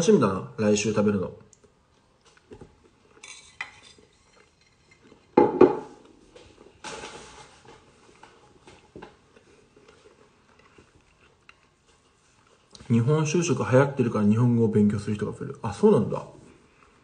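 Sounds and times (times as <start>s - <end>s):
plate and utensils clattering: 3.2s - 6.0s.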